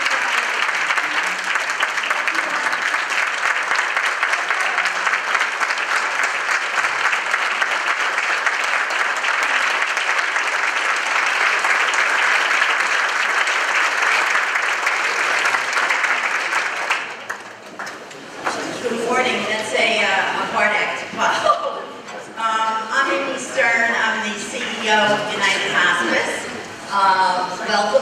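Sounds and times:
audience applauding: 0.0s - 18.8s.

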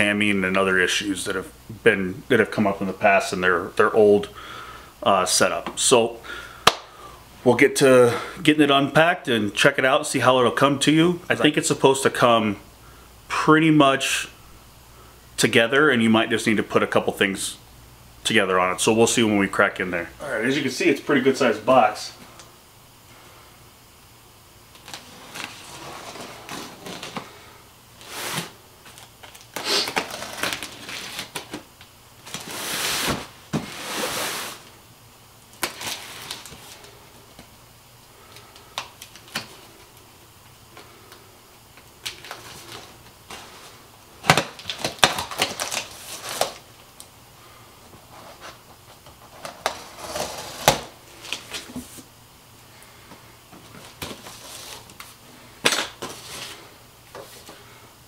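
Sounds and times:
packing tape scraping and tearing: 28.0s - 31.6s, 32.2s - 34.7s, 35.6s - 36.7s, 44.2s - 46.6s, 49.3s - 51.7s.

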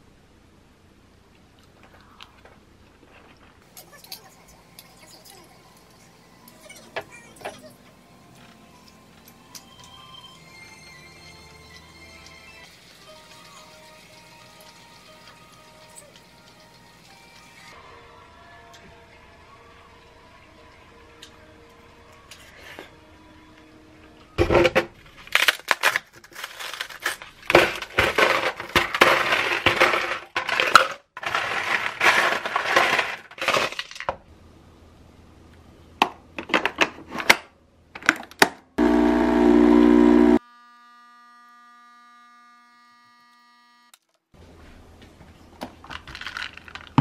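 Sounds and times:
ice cubes clinking in tumbler: 25.4s - 34.1s, 45.9s - 47.0s
faint steady hum: 38.8s - 43.7s
coffee machine pump buzzing: 38.8s - 43.9s.

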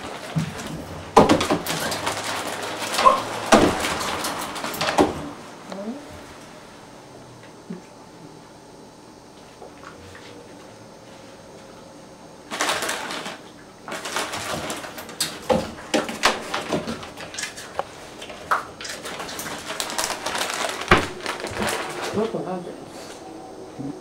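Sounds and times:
wire playpen rattling and clanking: 0.0s - 5.5s, 12.5s - 22.7s.

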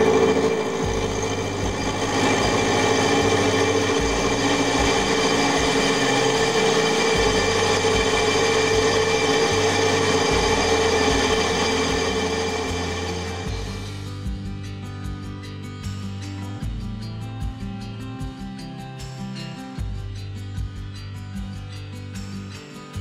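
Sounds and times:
end mill cutting metal: 0.0s - 14.0s
milling machine whine: 0.0s - 14.0s.

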